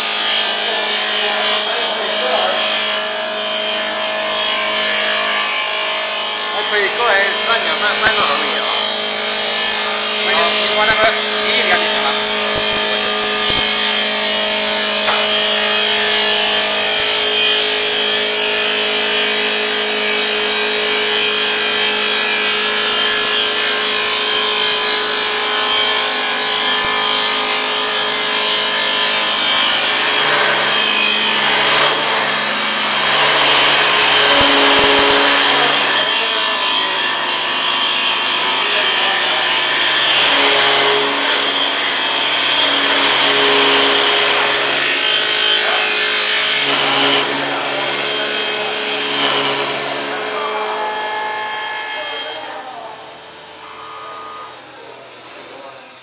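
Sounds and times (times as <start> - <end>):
lathe motor hum: 0.0 - 55.2
cutter shaving wood: 0.0 - 56.0.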